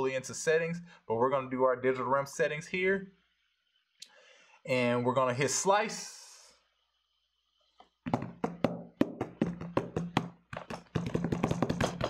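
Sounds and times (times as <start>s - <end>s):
irregular knocks and taps: 8.0s - 12.0s.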